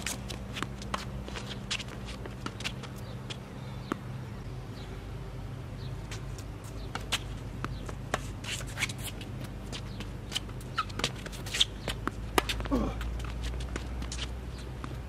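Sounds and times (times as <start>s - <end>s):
shoes scuffing on court: 0.0s - 4.0s, 6.1s - 15.0s
racquets striking tennis ball: 0.0s - 4.1s, 6.1s - 15.0s
steady low hum: 0.0s - 15.0s
ball bouncing: 9.9s - 15.0s.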